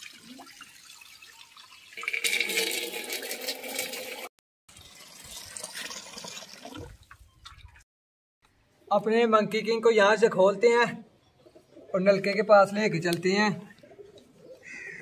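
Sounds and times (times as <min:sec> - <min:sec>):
water pouring into metal basin: 0:00.0 - 0:07.0.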